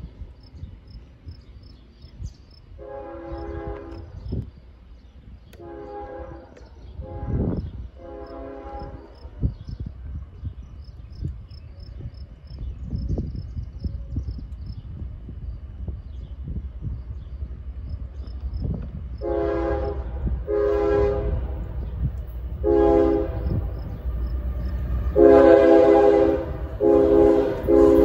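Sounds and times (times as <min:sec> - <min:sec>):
low wind rumble: 0:00.0 - 0:28.0
distant locomotive air horn: 0:02.8 - 0:04.3, 0:05.6 - 0:09.4, 0:19.2 - 0:28.0.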